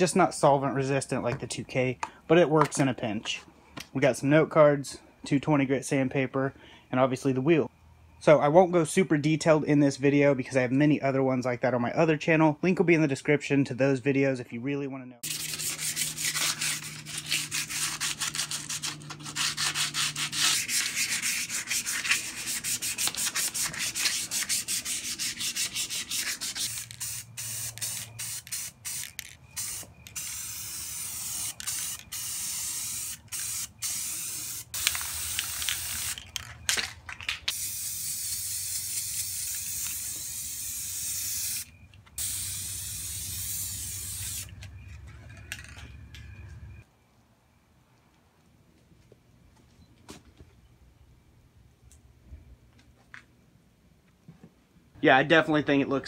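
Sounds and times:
sandpaper rubbing on metal: 15.2 - 29.1
aerosol spray can hissing: 15.2 - 36.3, 37.5 - 44.6.

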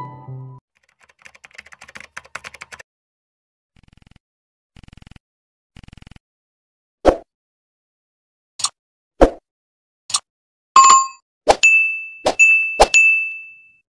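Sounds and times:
keyboard typing sound effect: 0.8 - 2.8
rapid clicking bursts: 0.8 - 2.8.

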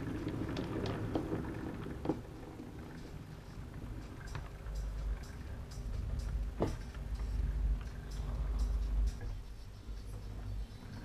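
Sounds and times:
model train rumbling on track: 0.0 - 11.0.

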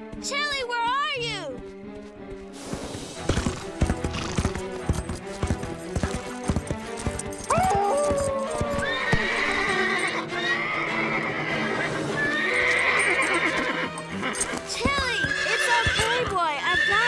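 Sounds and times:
background music: 0.0 - 17.0
hoofbeats: 0.0 - 17.0
horse whinnying: 7.4 - 17.0.

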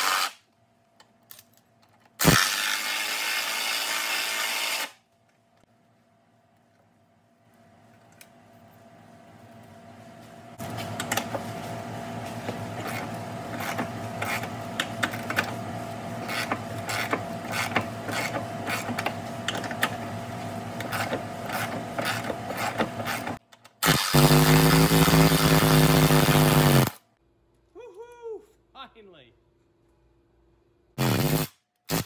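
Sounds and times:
power tool motor spinning up: 23.8 - 27.0.

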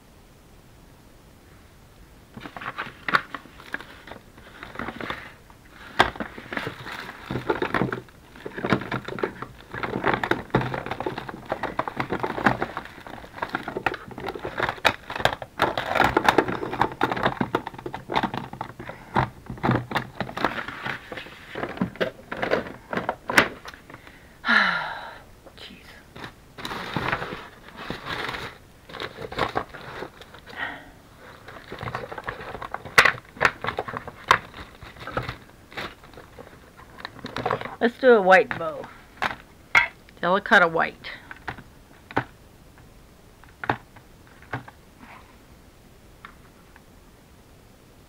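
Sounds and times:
paper and plastic crinkling: 2.4 - 24.1, 26.1 - 39.5.

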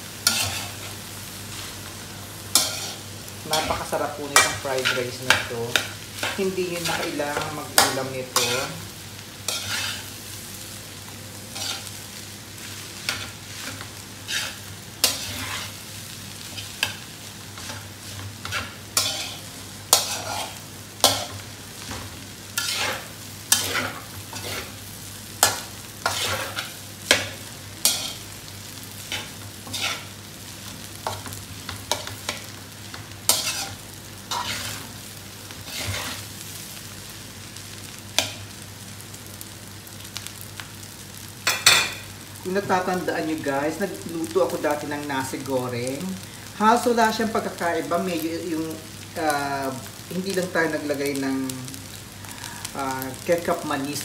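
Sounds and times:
frying sizzle: 0.0 - 54.0
metal spatula scraping pan: 0.2 - 0.8, 9.5 - 10.1, 11.6 - 11.9, 18.4 - 19.4, 20.0 - 21.4, 22.6 - 24.8, 25.4 - 27.2, 29.1 - 30.1, 33.3 - 34.9, 35.7 - 36.2.

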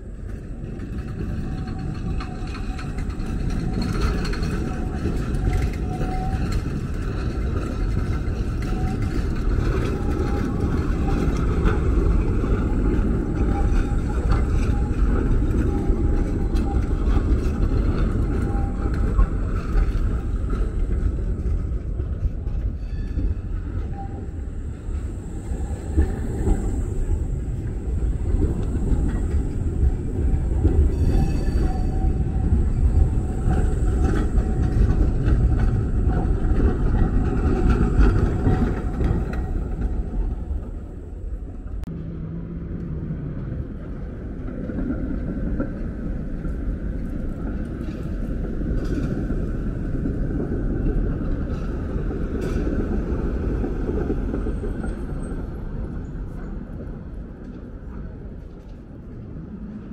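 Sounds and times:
tram rumbling on rails: 0.0 - 59.9.

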